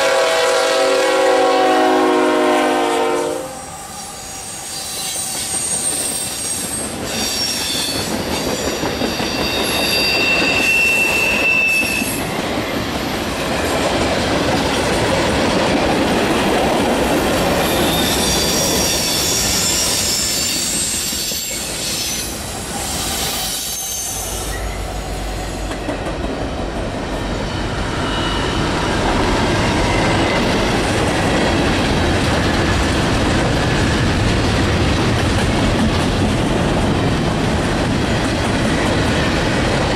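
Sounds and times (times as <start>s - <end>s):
high-pitched wheel squeal: 3.8s - 8.1s, 9.0s - 12.3s, 17.6s - 25.7s, 27.4s - 30.6s
freight cars rumbling along track: 12.0s - 39.9s.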